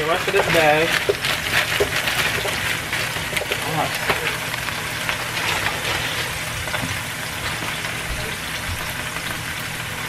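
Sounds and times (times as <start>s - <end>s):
vegetables sizzling in a frying pan: 0.0s - 10.0s.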